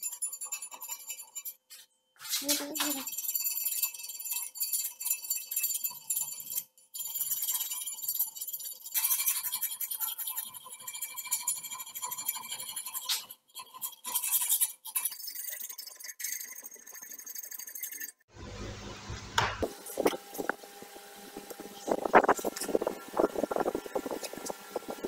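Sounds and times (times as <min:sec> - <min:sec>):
power grinder whining on steel: 0:19.6 - 0:25.0.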